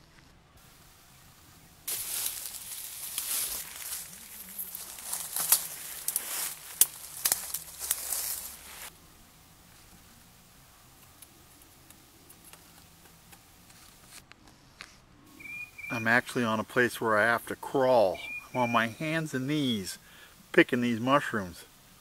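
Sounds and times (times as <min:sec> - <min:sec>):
faint woodland background: 0:00.0 - 0:22.0
leaves and brush rustling: 0:00.0 - 0:22.0
twigs snapping: 0:01.9 - 0:08.9.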